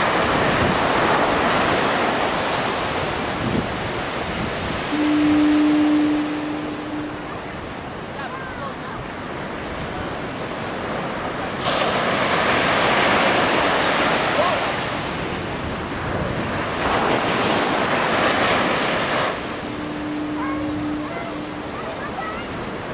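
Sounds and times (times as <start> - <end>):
heavy surf crashing: 0.0 - 22.9
wind: 0.0 - 22.9
steady low tone: 4.8 - 8.0, 19.3 - 22.9.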